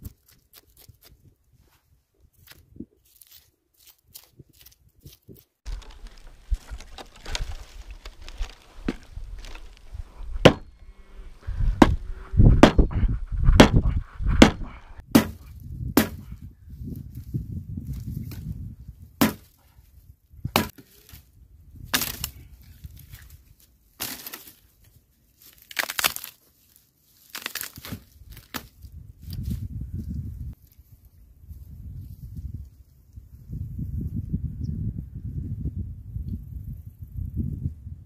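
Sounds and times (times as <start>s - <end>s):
dry wood cracking: 2.4s - 10.9s, 21.9s - 23.3s, 24.0s - 24.7s, 25.4s - 29.4s
hatchet chopping branch: 5.7s - 9.7s, 10.4s - 10.7s, 11.7s - 12.0s, 12.6s - 12.8s, 13.6s - 16.3s, 19.2s - 19.6s, 20.5s - 20.9s, 21.9s - 22.4s.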